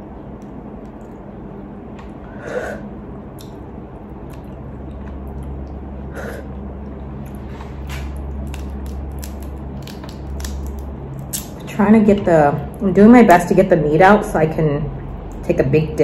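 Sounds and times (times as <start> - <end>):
steady low hum: 0.0 - 16.0
sucking fingers and chewing: 3.3 - 11.6
crab shell clicking and snapping: 8.1 - 11.6.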